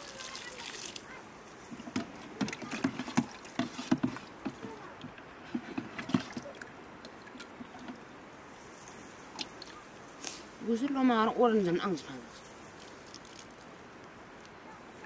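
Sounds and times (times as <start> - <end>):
faint background hiss: 0.0 - 15.0
plastic cup sloshing in bucket: 1.7 - 8.0.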